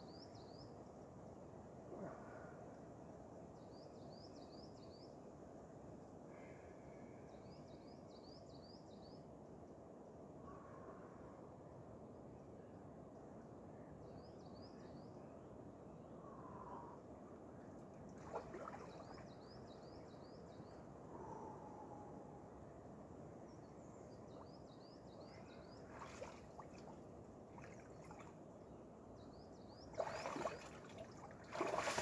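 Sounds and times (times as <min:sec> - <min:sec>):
lake water sloshing: 0:18.2 - 0:19.2, 0:25.9 - 0:28.4, 0:29.9 - 0:32.0
legs splashing in water: 0:30.0 - 0:32.0.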